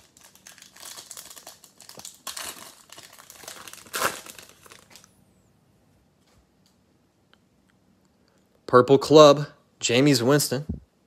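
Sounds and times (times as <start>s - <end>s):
foil wrapper crinkling and ripping: 0.0s - 5.1s.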